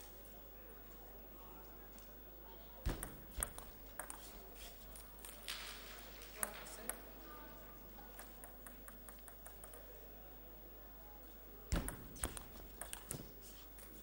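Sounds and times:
table tennis ball clicking: 2.9 - 4.2, 8.1 - 9.9, 11.7 - 13.3.

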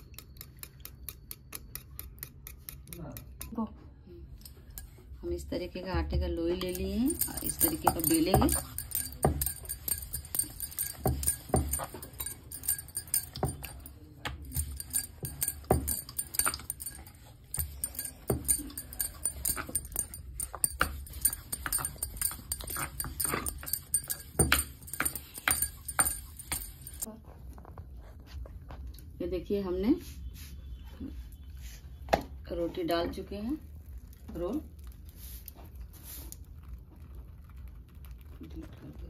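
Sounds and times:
rolling pin on wooden board: 6.0 - 27.1
metal bangles clinking: 6.6 - 27.1.

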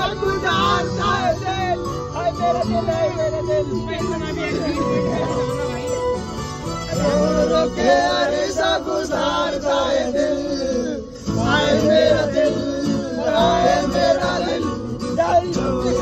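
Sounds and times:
men singing together: 0.0 - 3.9, 6.9 - 16.0
music: 0.0 - 16.0.

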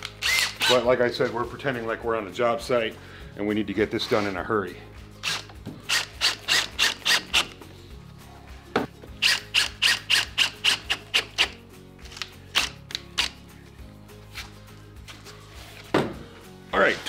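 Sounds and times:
drill driving screws into plywood: 0.0 - 0.8, 5.2 - 7.6, 9.2 - 11.6.

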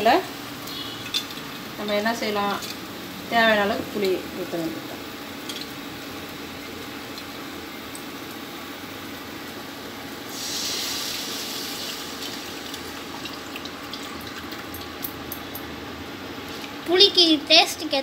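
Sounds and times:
water pouring into hot pan: 10.3 - 14.7.

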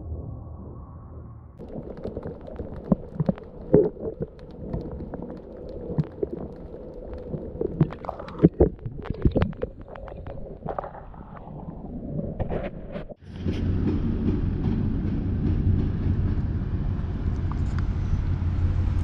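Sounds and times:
underwater rumble: 0.0 - 19.0
underwater clicks and knocks: 1.6 - 13.2.

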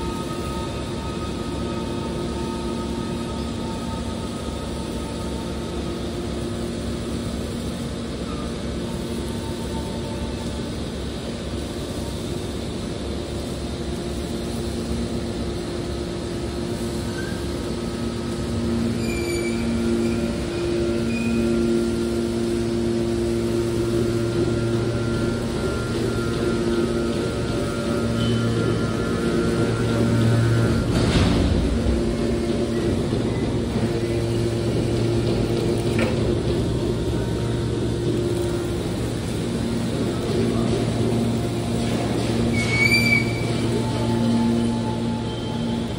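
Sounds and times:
hydraulic baler droning: 16.0 - 45.9.

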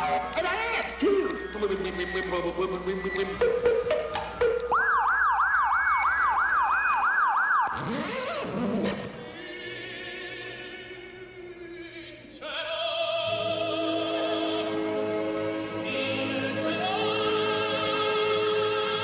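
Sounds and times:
operatic singing: 7.8 - 19.0.

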